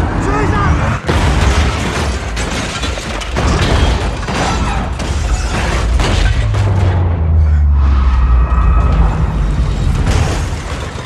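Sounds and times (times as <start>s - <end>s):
heavy crashes and metal impacts: 1.0s - 7.6s, 8.8s - 11.0s
film music: 4.0s - 10.9s
deep low rumble: 6.0s - 10.7s.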